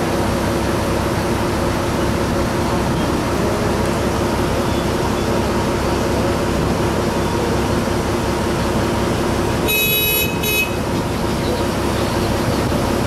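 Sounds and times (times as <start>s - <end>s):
ferry diesel engine droning: 0.0s - 13.0s
horn beep: 9.6s - 10.8s.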